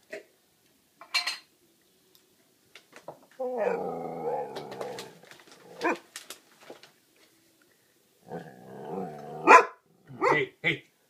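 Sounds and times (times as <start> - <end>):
dog growl-howling: 3.4 - 6.0, 8.2 - 10.2
dog barking: 5.8 - 6.0, 9.4 - 10.5.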